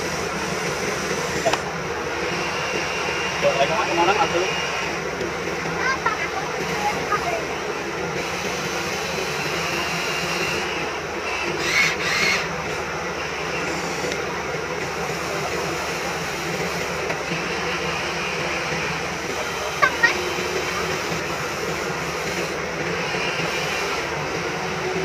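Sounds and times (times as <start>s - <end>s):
toy excavator motors whirring: 0.0s - 1.7s, 5.8s - 7.5s, 8.1s - 14.2s, 14.8s - 24.1s.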